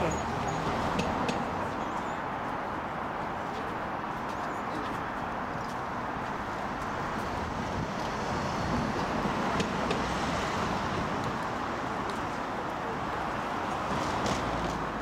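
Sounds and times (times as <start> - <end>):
road traffic passing: 0.0 - 15.0.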